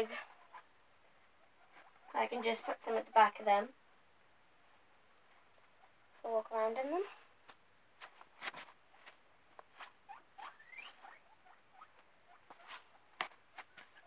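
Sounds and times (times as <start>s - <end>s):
guinea pigs squeaking: 0.0s - 0.7s, 1.4s - 3.7s, 9.8s - 14.0s.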